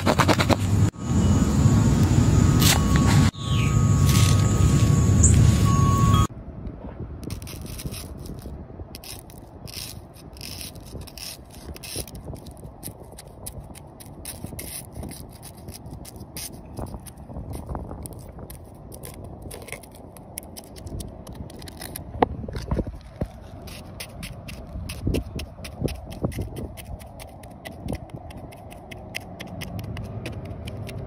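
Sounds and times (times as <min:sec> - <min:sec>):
egg clutch crackling and scraping: 0:07.2 - 0:31.0.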